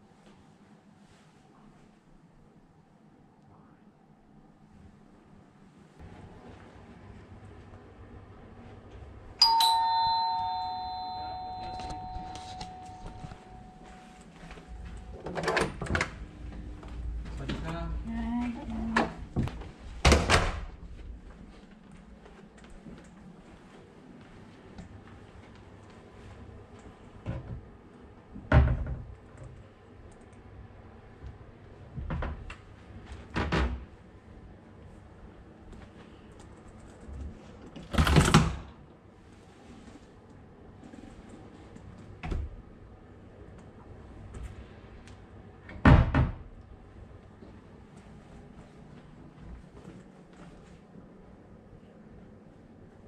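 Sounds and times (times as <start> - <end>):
two-tone doorbell chime: 9.4 - 15.6.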